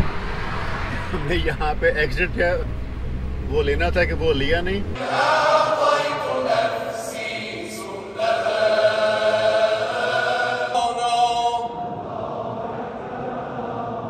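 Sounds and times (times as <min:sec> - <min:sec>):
chanting over loudspeakers: 0:05.0 - 0:14.0.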